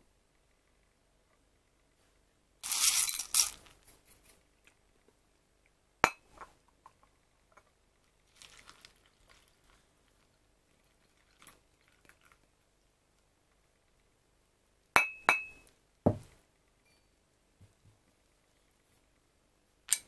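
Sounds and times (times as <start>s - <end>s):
dry cereal rattling in glass bowl: 2.6s - 3.8s, 8.3s - 12.4s
glass clink: 6.0s - 6.3s, 15.0s - 16.2s, 16.8s - 17.1s
milk pouring onto cereal: 7.9s - 14.1s.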